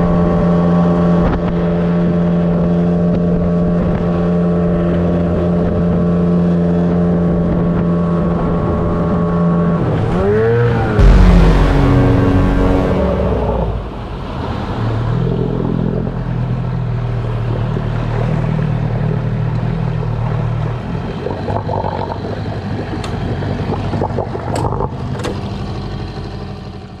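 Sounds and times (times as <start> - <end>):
outboard motor running: 15.3 - 27.0.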